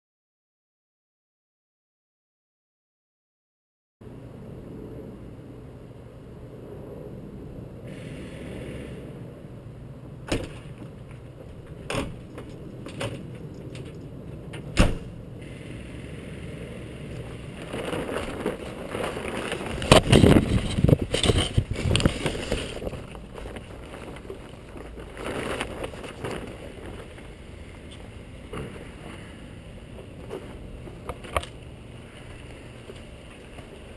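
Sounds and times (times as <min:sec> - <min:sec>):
plastic tarp rustling: 0:17.2 - 0:27.4.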